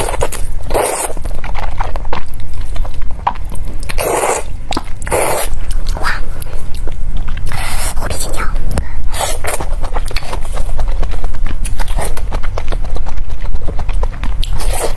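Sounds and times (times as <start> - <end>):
wet chewing: 0.0 - 14.9
slurping noodles: 3.9 - 5.6.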